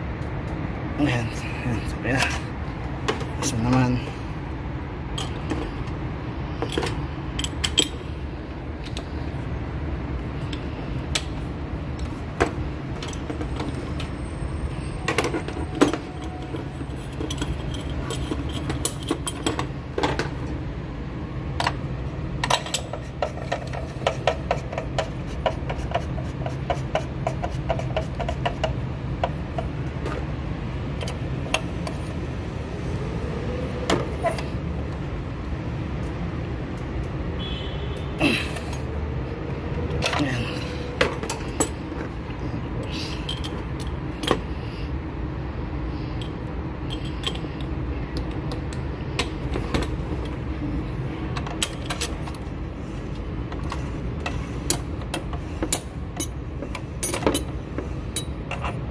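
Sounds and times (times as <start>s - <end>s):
metal tools clinking: 15.0s - 19.7s, 42.9s - 44.4s, 46.2s - 47.6s, 54.7s - 58.8s.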